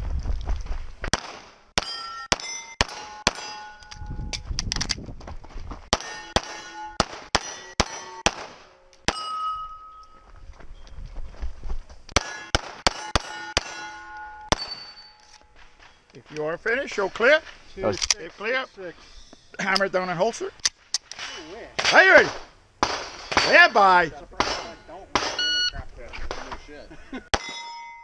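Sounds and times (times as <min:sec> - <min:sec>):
pistol shots: 0:01.1 - 0:03.6, 0:05.9 - 0:09.3, 0:12.2 - 0:13.9, 0:14.5 - 0:14.9, 0:21.8 - 0:23.7, 0:24.4 - 0:25.5
steel target ringing: 0:01.8 - 0:04.0, 0:06.0 - 0:10.2, 0:12.2 - 0:15.6, 0:27.4 - 0:28.0.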